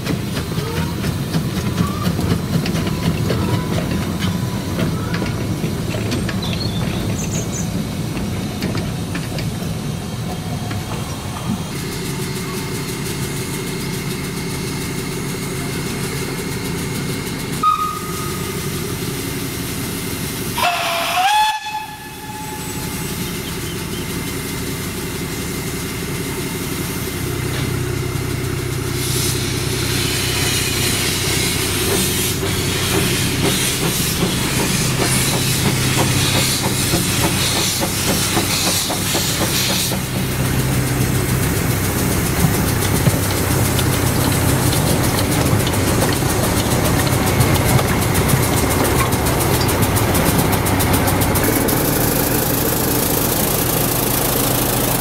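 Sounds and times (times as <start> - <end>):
steam locomotive running: 0.0 - 55.0
steam whistle: 17.6 - 18.6, 20.5 - 23.0.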